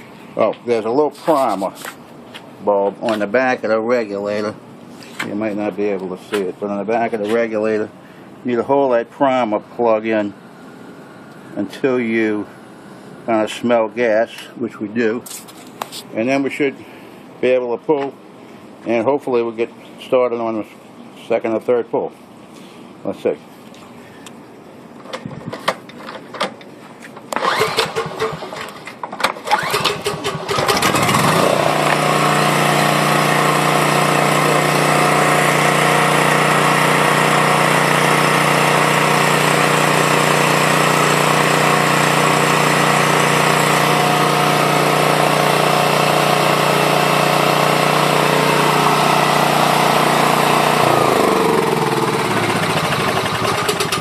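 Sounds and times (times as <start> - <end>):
generator engine running: 27.3 - 28.8, 29.5 - 54.0.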